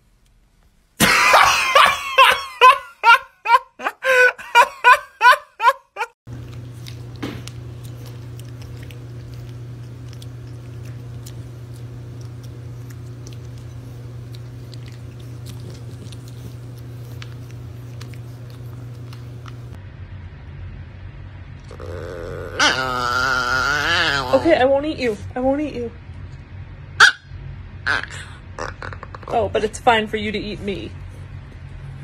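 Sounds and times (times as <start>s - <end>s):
puppy chewing dry kibble: 6.3s - 19.8s
steady low hum: 6.3s - 23.0s.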